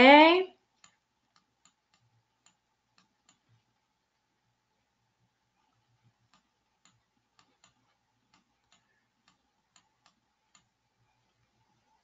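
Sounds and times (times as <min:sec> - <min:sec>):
faint computer clicks: 0:00.8 - 0:03.7, 0:06.2 - 0:10.8.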